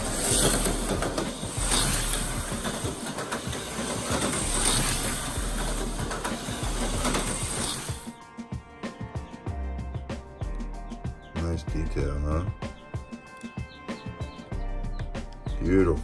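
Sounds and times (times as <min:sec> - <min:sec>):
slot car motor whirring: 0:00.0 - 0:08.1.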